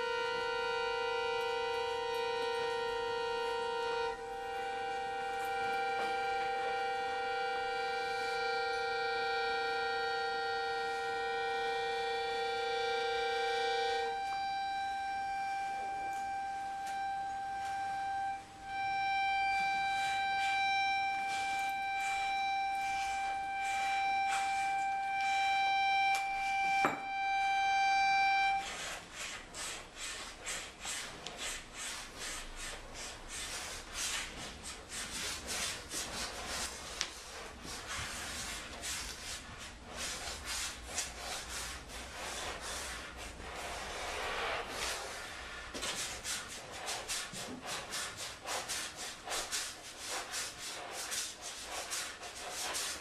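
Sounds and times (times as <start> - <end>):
accordion sustained high note: 0.0 - 29.0.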